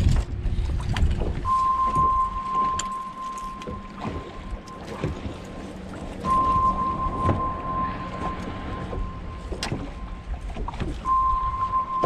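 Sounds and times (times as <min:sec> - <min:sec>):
water around boat: 0:00.0 - 0:12.0
wind: 0:00.0 - 0:12.0
high-pitched electronic tone: 0:01.5 - 0:05.0, 0:06.2 - 0:10.2, 0:11.0 - 0:12.0.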